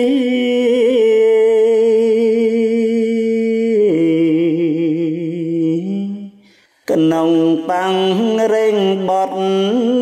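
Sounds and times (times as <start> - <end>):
man chanting a drawn-out vowel: 0.0 - 10.0.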